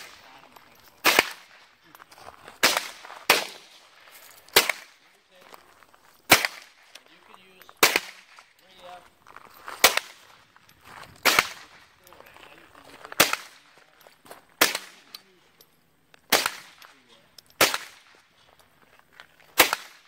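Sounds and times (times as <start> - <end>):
rifle shots: 1.0 - 1.6, 2.6 - 3.8, 4.5 - 5.1, 6.3 - 6.8, 7.8 - 8.4, 9.8 - 10.3, 11.2 - 11.8, 13.2 - 13.7, 14.6 - 15.1, 16.3 - 16.9, 17.6 - 18.2, 19.6 - 20.0.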